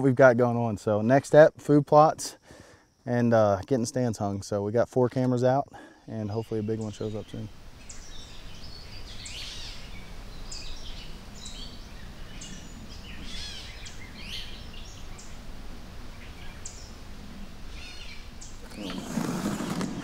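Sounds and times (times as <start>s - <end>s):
outdoor background noise: 0.0s - 20.0s
birds chirping and whistling: 6.3s - 15.4s, 16.1s - 17.0s, 17.7s - 20.0s.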